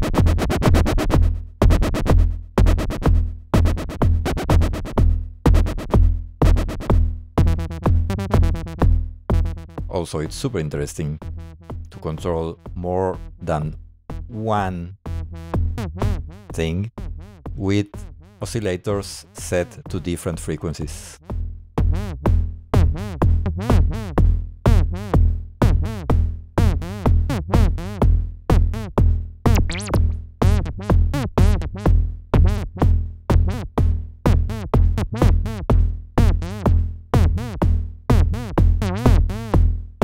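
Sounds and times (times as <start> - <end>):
deep synth bass: 0.0 - 40.0
synthesizer pulsing pattern: 7.4 - 9.8, 11.2 - 13.5, 15.0 - 18.6, 29.5 - 30.6.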